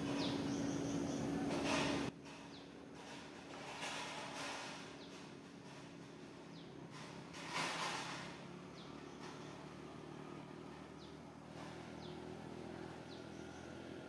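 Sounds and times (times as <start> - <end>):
bird chirping: 0.0 - 2.8, 11.9 - 14.0
steady low hum: 0.0 - 14.0.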